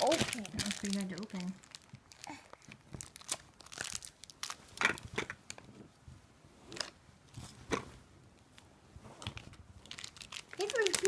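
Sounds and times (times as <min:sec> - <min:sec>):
plastic wrapper crinkling: 0:00.0 - 0:05.7, 0:09.2 - 0:11.0.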